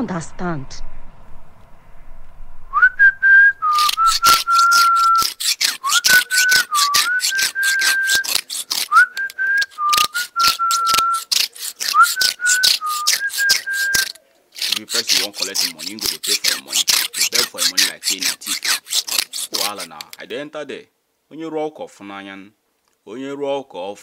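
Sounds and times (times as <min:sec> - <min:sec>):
person whistling a tune: 0:02.7 - 0:05.2, 0:05.8 - 0:08.3, 0:08.9 - 0:11.3, 0:11.9 - 0:14.1
knife scraping on concrete: 0:03.6 - 0:20.2.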